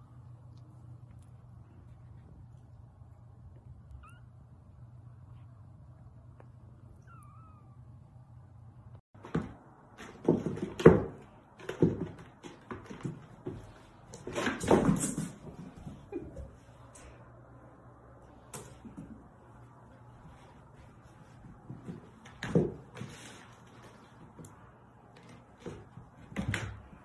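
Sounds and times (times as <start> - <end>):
low steady hum: 0.0 - 9.0
kitten paws thudding and scrabbling: 9.2 - 16.6, 18.5 - 24.5.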